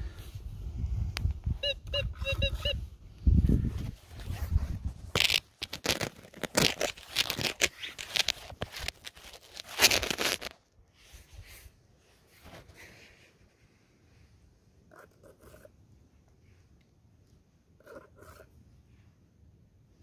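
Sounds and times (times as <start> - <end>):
dirt scraping against a phone: 3.6 - 11.4.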